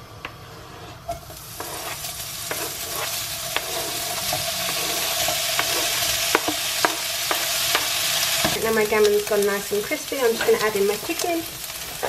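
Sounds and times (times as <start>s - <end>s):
meat sizzling in a frying pan: 1.0s - 12.0s
spatula tapping: 1.2s - 8.6s.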